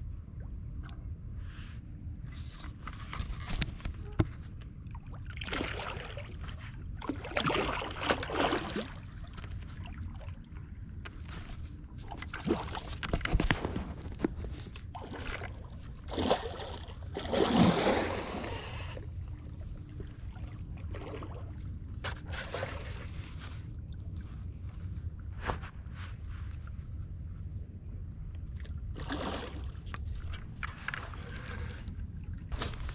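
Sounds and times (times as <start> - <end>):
steady low rumble: 0.0 - 32.9
fish thrashing water splashing: 15.0 - 18.9.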